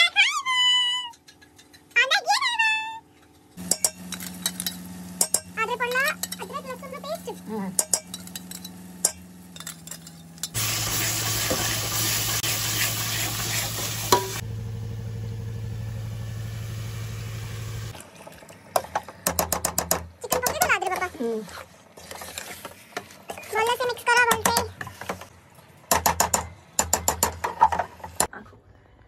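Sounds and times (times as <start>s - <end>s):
food sizzling: 3.6s - 9.6s, 10.5s - 18.2s
ladle scraping a metal pot: 20.9s - 23.6s.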